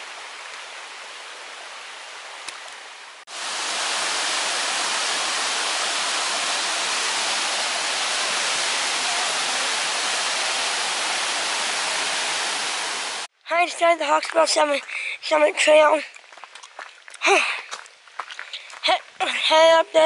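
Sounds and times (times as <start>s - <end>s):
creek water running over rocks: 0.0s - 20.0s
waterfall rushing over rocks: 3.3s - 13.3s.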